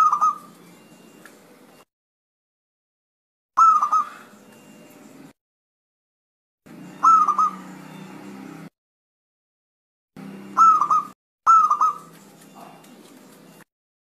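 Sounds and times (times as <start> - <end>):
dove cooing: 0.0 - 0.8, 3.6 - 4.4, 6.8 - 8.1, 10.5 - 13.6.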